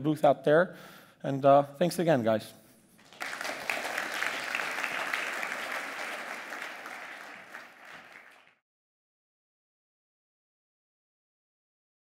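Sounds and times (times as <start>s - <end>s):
audience applauding: 3.0s - 8.6s.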